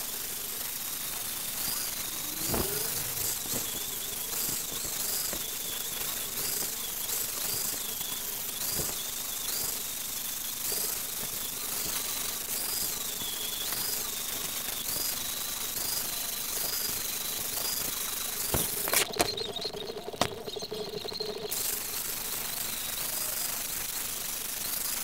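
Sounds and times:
angle grinder whining on metal: 0:00.0 - 0:24.0.

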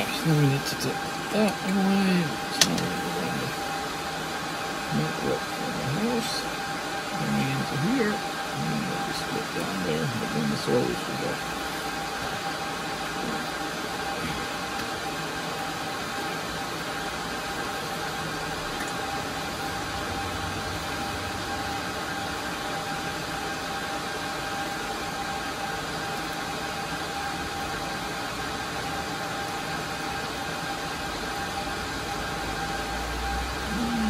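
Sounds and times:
cooling fans whirring: 0:00.0 - 0:34.0
steady whine: 0:00.0 - 0:34.0.

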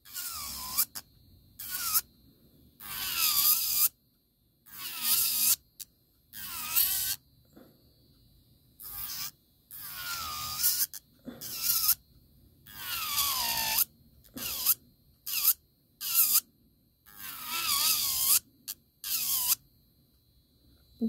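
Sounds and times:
electric nail file whining: 0:00.0 - 0:02.1, 0:02.8 - 0:04.0, 0:04.7 - 0:05.6, 0:06.3 - 0:07.2, 0:08.8 - 0:12.0, 0:12.7 - 0:16.5, 0:17.1 - 0:19.6.

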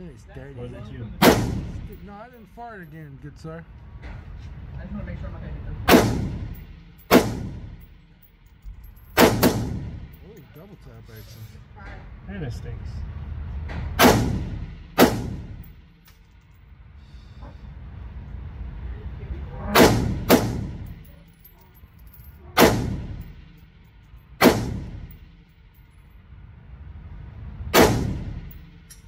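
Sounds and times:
rifle shots with echo: 0:01.2 - 0:02.0, 0:05.9 - 0:07.9, 0:09.2 - 0:10.1, 0:14.0 - 0:15.7, 0:19.7 - 0:20.9, 0:22.6 - 0:23.4, 0:24.4 - 0:25.1, 0:27.8 - 0:28.6.

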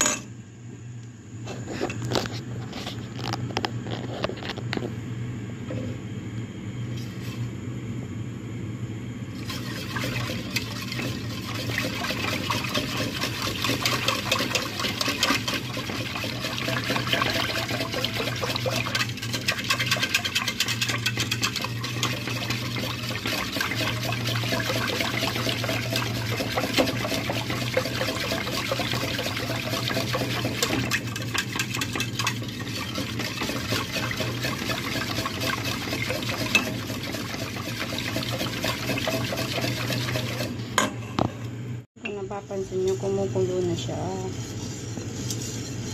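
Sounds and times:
liquid sloshing in a pot: 0:09.4 - 0:40.9
utensil scraping metal pot: 0:09.4 - 0:41.3.

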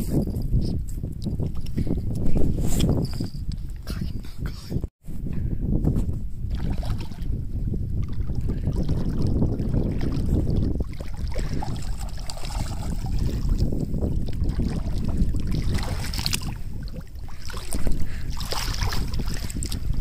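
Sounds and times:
wind buffeting microphone: 0:00.0 - 0:20.0
splashes in shallow water: 0:06.5 - 0:07.3, 0:08.0 - 0:13.6, 0:14.2 - 0:20.0.

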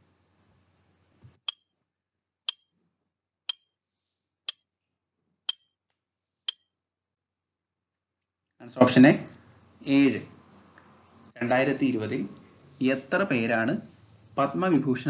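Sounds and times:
clock ticking: 0:02.5 - 0:02.7.

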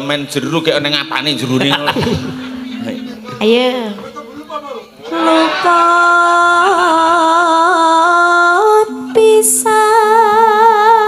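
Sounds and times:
low held tone: 0:00.0 - 0:11.0
woman singing with vibrato: 0:03.2 - 0:04.2, 0:05.0 - 0:11.0.

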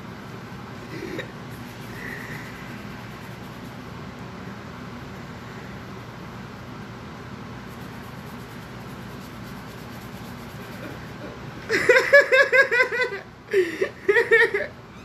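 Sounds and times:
person laughing high-pitched: 0:11.7 - 0:14.8.

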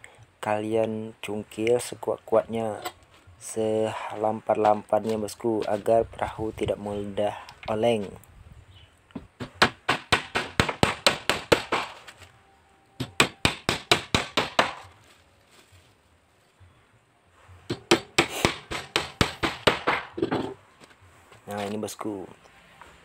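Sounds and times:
hammer striking wooden plank: 0:09.2 - 0:12.1, 0:13.0 - 0:14.9, 0:17.7 - 0:20.6.

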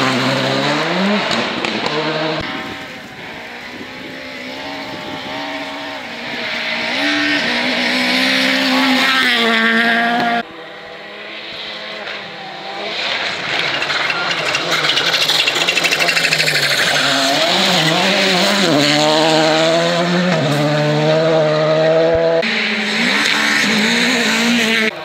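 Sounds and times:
rally car approaching: 0:00.0 - 0:25.0
rally car engine revving: 0:00.0 - 0:25.0.

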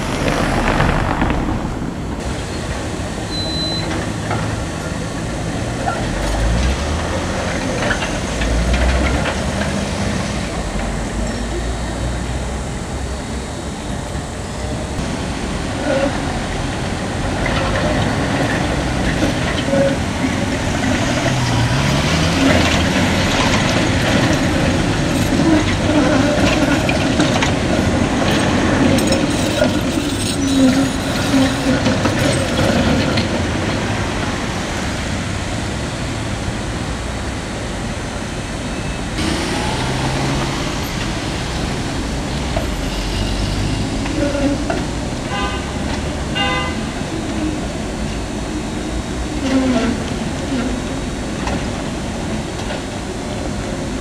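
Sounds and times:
short rising whine: 0:00.0 - 0:02.6
passing car traffic: 0:00.0 - 0:03.3, 0:14.8 - 0:26.1, 0:33.0 - 0:51.3
tram wheels clattering on rails: 0:00.0 - 0:54.0.

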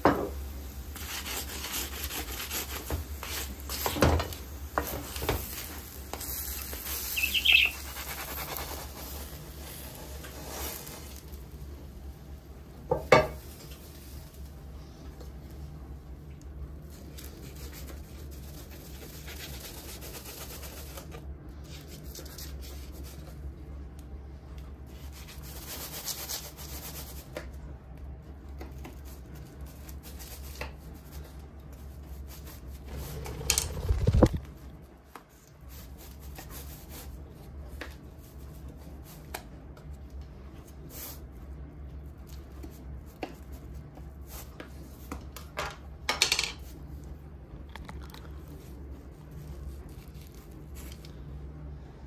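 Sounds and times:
crust scraping on parchment paper: 0:00.9 - 0:11.5
steady low hum: 0:46.6 - 0:52.0.

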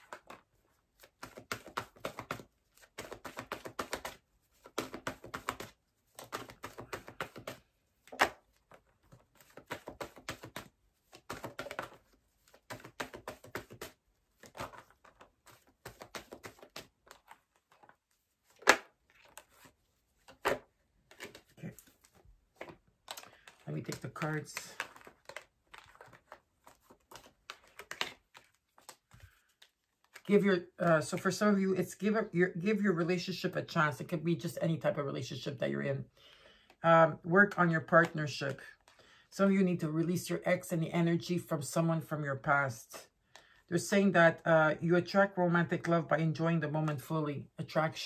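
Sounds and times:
cards being shuffled: 0:00.0 - 0:32.2.

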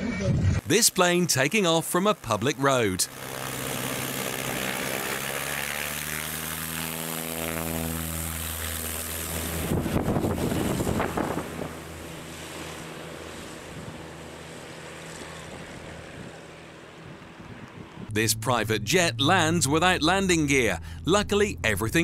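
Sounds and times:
propeller plane engine drone: 0:00.0 - 0:22.0
wind gusts on microphone: 0:09.5 - 0:11.8.

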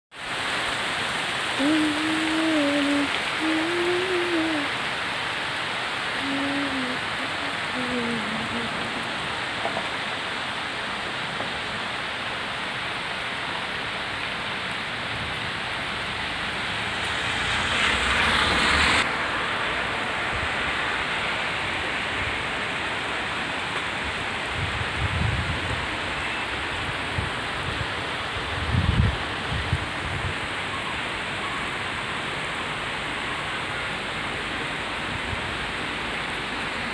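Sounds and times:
heavy rain pouring: 0:00.1 - 0:36.9
loud rush of noise: 0:15.2 - 0:23.4.

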